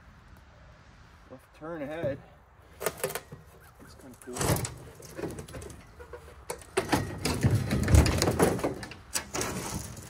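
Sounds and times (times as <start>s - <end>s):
metal signs scraping and clattering: 2.8s - 10.0s.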